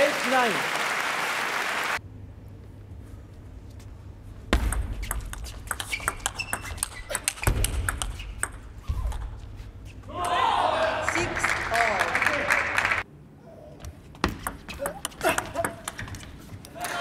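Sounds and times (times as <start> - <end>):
applause: 0.0 - 2.0, 11.0 - 13.0.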